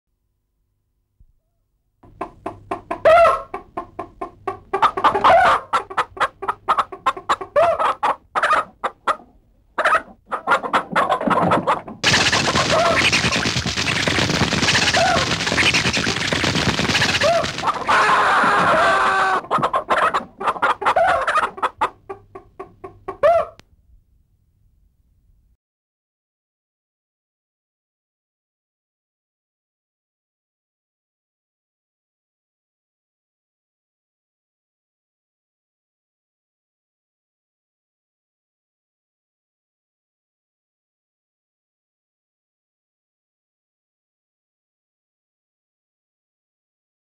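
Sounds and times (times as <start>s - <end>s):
chickens clucking: 2.1s - 23.6s
chickens squawking: 2.4s - 23.6s.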